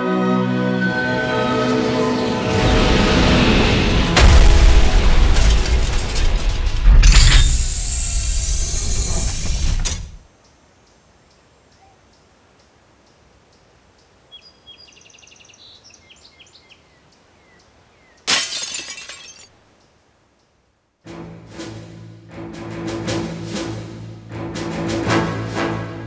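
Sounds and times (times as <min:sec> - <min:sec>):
cartoon crash landing: 0:02.6 - 0:10.2
glass breaking smash: 0:04.2 - 0:08.4, 0:18.3 - 0:19.5.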